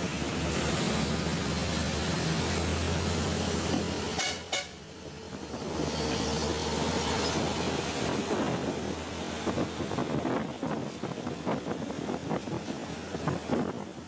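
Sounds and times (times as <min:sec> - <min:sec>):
road noise: 0:00.0 - 0:14.0
truck horn toots: 0:04.2 - 0:04.8.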